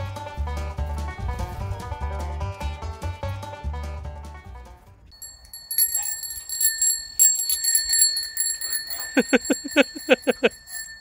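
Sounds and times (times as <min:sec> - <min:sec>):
bicycle bell ringing: 0:05.1 - 0:11.0.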